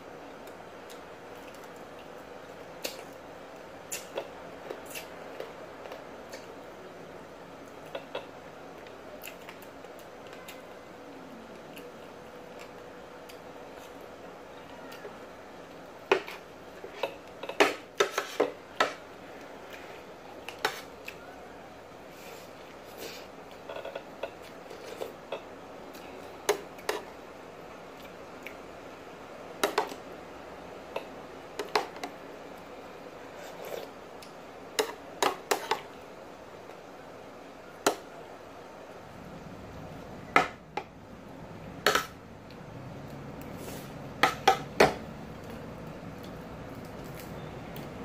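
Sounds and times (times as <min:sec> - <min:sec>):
soft chewing: 0:00.4 - 0:06.7, 0:07.6 - 0:18.4, 0:19.2 - 0:27.2.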